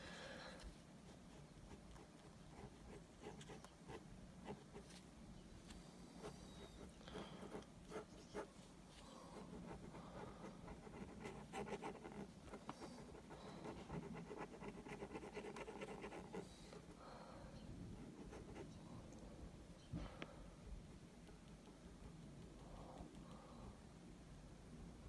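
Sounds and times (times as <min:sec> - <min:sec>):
pen scratching on paper: 0:06.2 - 0:08.5, 0:09.4 - 0:16.9.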